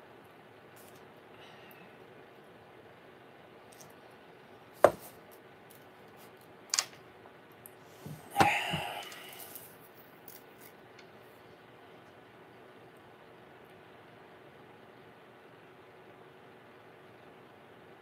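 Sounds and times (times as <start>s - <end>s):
paper cup knocking on tabletop: 4.8s - 5.1s.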